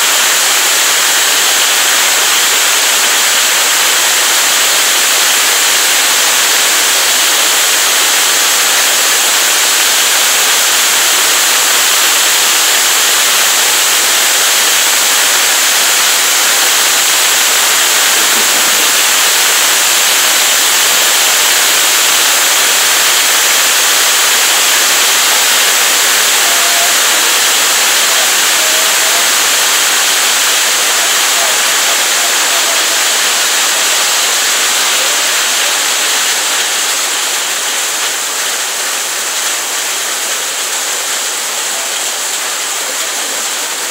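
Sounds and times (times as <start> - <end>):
hail and heavy rain pelting: 0.0 - 43.9.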